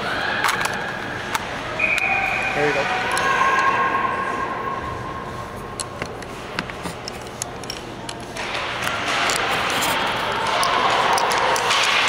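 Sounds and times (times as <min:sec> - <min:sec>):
low rink hum: 0:00.0 - 0:12.0.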